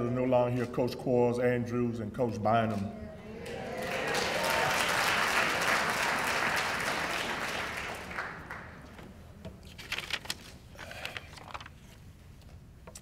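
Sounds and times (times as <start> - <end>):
audience applauding: 3.4 - 9.0.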